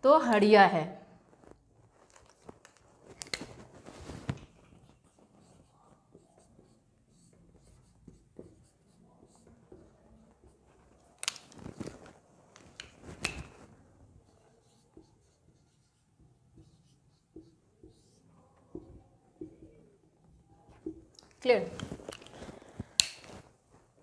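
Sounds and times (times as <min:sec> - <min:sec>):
marker scratching on whiteboard: 0:04.3 - 0:21.1.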